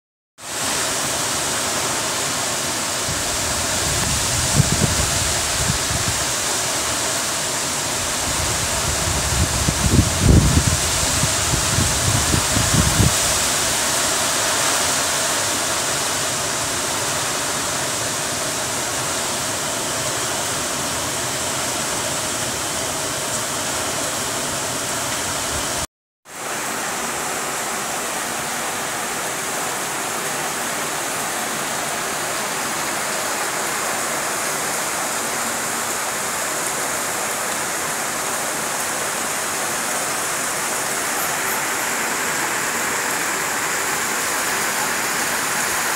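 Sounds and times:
heavy rain on leaves: 0.4 - 45.9
wind gusts buffeting microphone: 3.1 - 6.4, 8.1 - 13.8.

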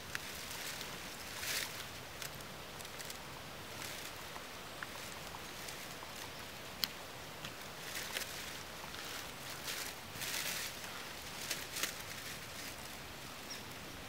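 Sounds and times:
dry leaves rustling and crackling: 0.0 - 13.9
steady outdoor hiss: 0.0 - 14.0
small ticks: 3.8 - 10.4.

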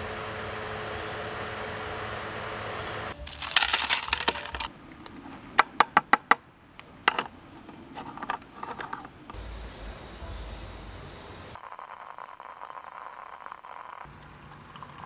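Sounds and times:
fan whirring: 0.0 - 4.8
low steady rumble: 9.4 - 11.6.

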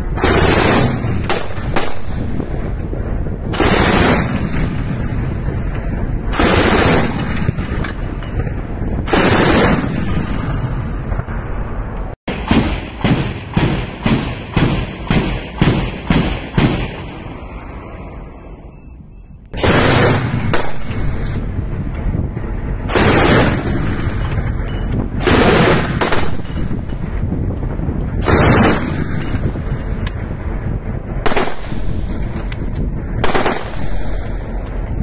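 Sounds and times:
autocannon firing: 0.1 - 2.4, 3.5 - 5.1, 6.3 - 8.0, 9.0 - 10.7, 12.3 - 17.2, 19.6 - 21.3, 22.9 - 24.4, 25.2 - 26.9, 28.2 - 29.2, 31.2 - 32.0, 33.2 - 34.2.

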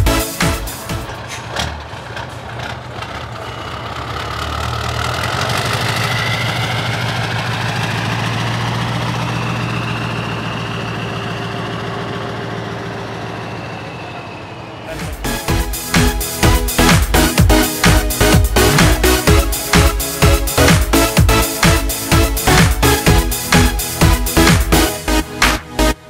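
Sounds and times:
truck diesel engine running: 0.0 - 26.0.

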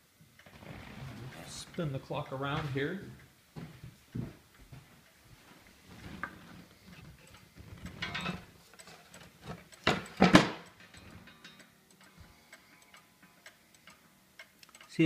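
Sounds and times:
clock ticking: 7.1 - 15.0.

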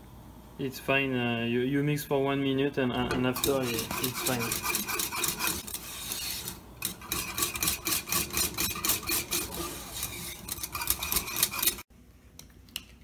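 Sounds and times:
whisk scraping metal saucepan: 3.0 - 11.9.

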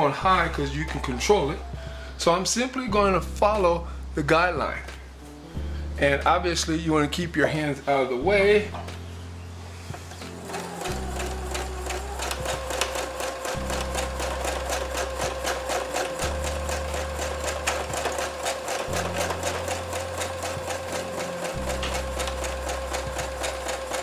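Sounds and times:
sewing machine motor whine: 10.2 - 24.0
sewing machine needle rattle: 10.5 - 24.0.

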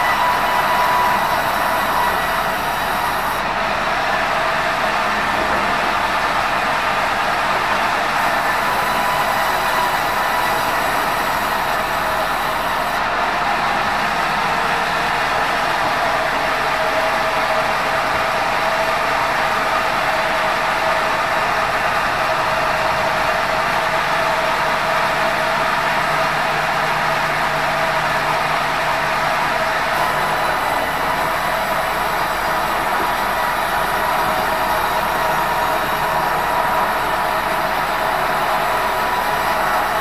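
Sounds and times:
band saw cutting log: 0.0 - 3.4, 8.2 - 13.0, 30.0 - 40.0.

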